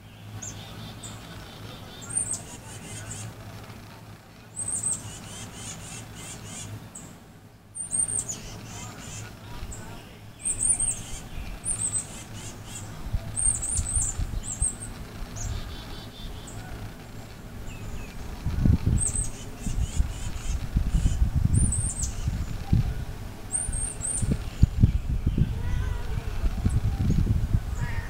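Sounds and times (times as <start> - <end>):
small bird chirping: 0.0 - 3.4, 4.4 - 28.0
low irregular rumble: 0.0 - 28.0.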